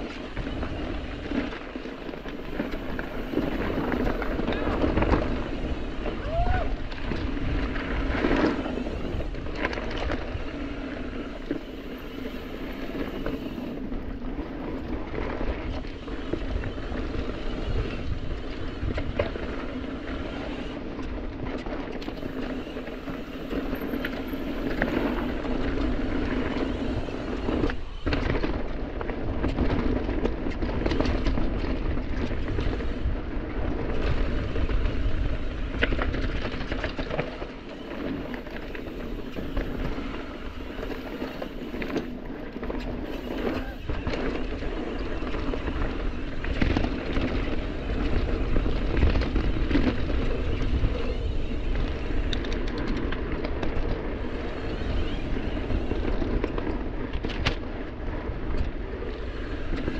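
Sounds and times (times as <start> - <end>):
bike rattling and knocking: 0.0 - 59.9
tyres rumbling over dirt: 0.0 - 59.9.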